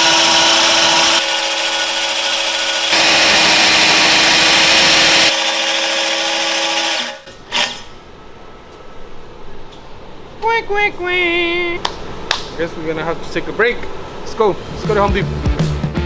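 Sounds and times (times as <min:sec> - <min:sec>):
electric drill motor whine: 0:00.0 - 0:07.7
hole saw grinding on metal: 0:00.0 - 0:07.9.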